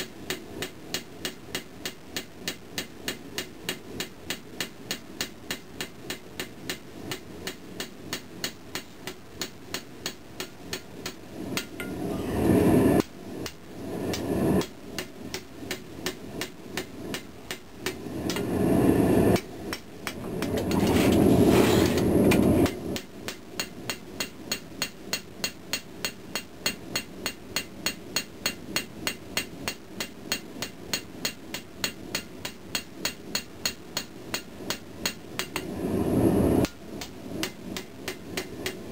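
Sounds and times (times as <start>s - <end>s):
hammer striking steel on anvil: 0.3s - 12.0s, 22.6s - 35.7s.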